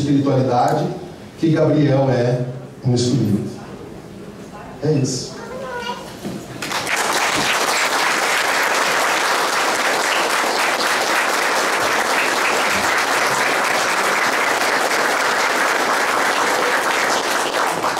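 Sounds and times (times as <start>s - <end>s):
audience applauding: 6.6s - 17.9s.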